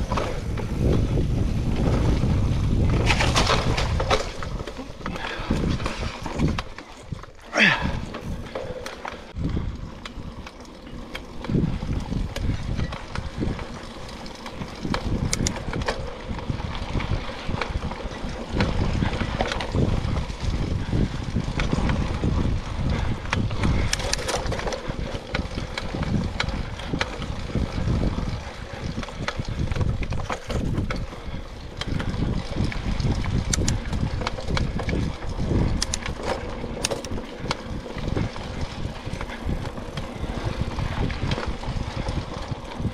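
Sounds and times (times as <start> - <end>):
bike rattling over bumps: 0.0 - 42.9
bike tyres rumbling on dirt: 0.0 - 42.9
wind: 0.0 - 42.9.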